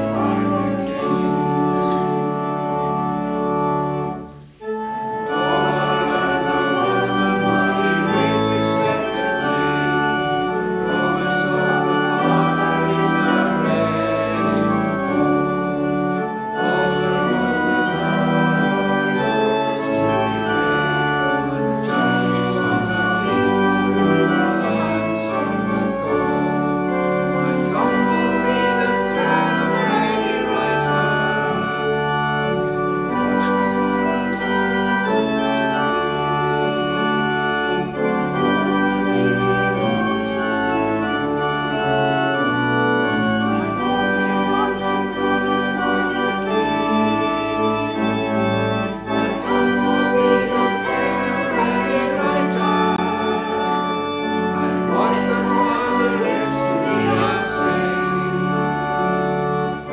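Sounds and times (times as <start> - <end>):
organ playing sustained chords: 0.0 - 59.9.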